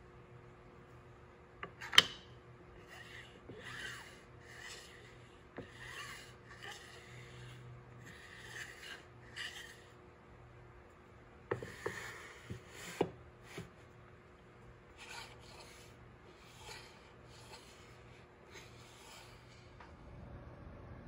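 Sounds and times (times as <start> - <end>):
plane sliding on metal track: 2.8 - 10.0, 15.0 - 19.8.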